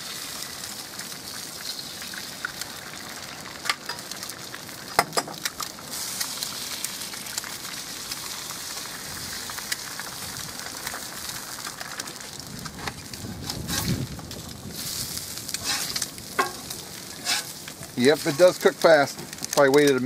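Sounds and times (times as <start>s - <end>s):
eggs sizzling on a griddle: 0.0s - 20.0s
eggshells cracking: 9.4s - 20.0s.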